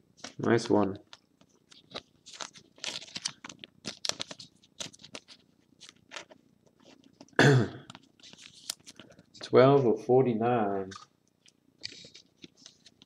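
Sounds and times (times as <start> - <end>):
trading cards scraping and rustling: 0.2 - 9.6, 10.9 - 13.0.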